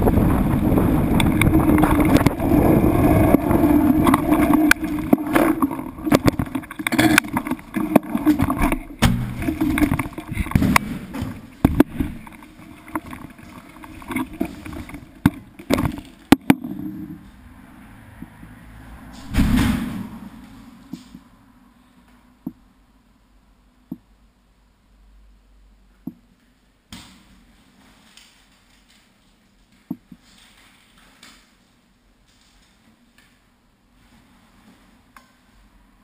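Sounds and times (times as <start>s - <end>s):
wind buffeting microphone: 0.0s - 8.7s
steady hum: 0.0s - 18.6s
knocks and clatters on boat: 1.0s - 16.6s.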